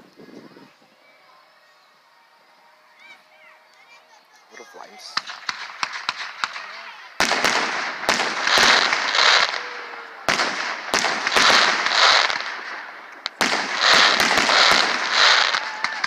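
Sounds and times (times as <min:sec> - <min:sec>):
firework crackling: 0:03.8 - 0:16.0
firework shells bursting: 0:05.0 - 0:16.0.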